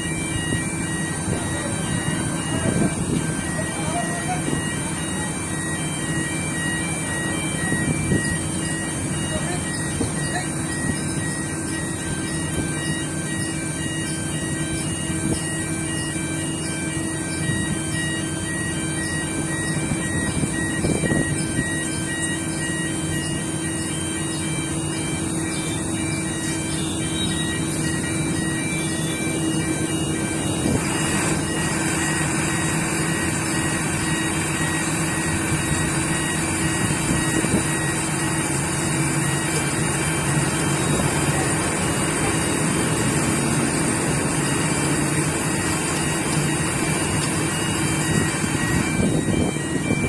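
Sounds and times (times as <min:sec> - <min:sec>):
diesel crane engine running: 0:00.0 - 0:50.0.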